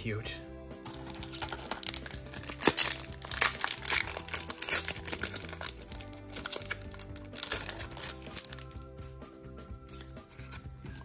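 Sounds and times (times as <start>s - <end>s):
background music: 0.0s - 11.0s
foil wrapper crinkling and tearing: 0.9s - 8.8s.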